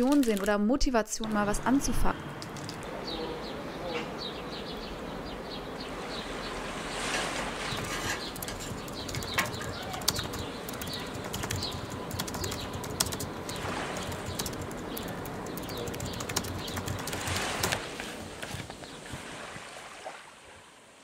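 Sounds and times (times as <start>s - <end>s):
small birds chirping: 2.5s - 17.8s, 18.5s - 19.2s
steady rushing noise: 7.0s - 18.9s
sharp clicks: 8.2s - 17.8s.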